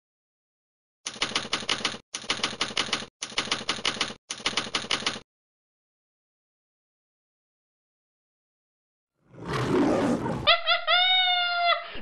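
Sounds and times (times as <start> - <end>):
typewriter key strikes: 1.1 - 5.2.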